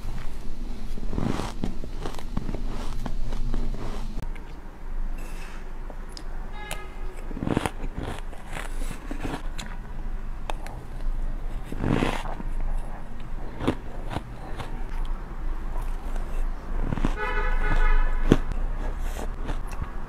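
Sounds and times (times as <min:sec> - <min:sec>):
chewing crunchy snow: 0:00.0 - 0:04.3, 0:07.1 - 0:09.8, 0:10.5 - 0:20.0
metal spoon scraping snow: 0:00.9 - 0:04.0.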